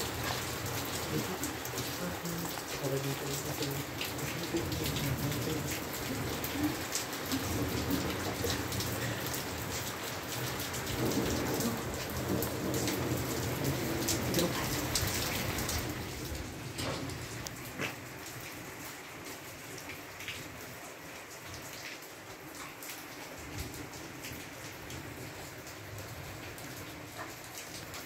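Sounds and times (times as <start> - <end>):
raindrops hitting a surface: 0.0 - 28.0
steady rain: 0.0 - 28.0
low thunder rumble: 3.8 - 17.4.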